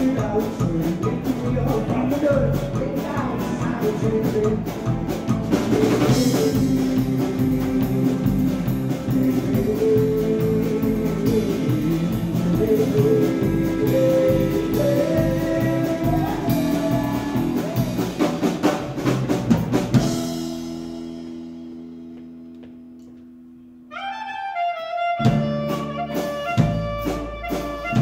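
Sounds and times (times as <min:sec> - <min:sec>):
muffled singing: 0:00.0 - 0:18.3
loud drum kit: 0:00.0 - 0:22.4, 0:25.2 - 0:28.0
live band playing: 0:00.0 - 0:22.9, 0:23.8 - 0:28.0
clarinet: 0:23.8 - 0:28.0.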